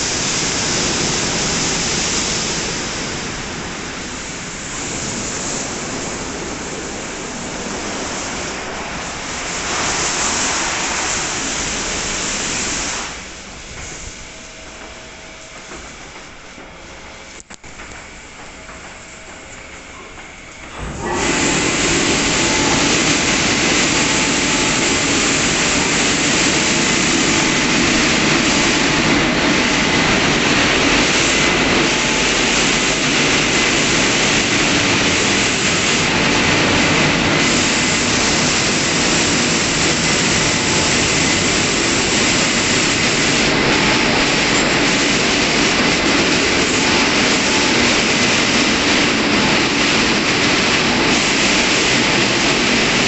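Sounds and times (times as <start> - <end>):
car wash blower fans rushing: 0.0 - 53.0.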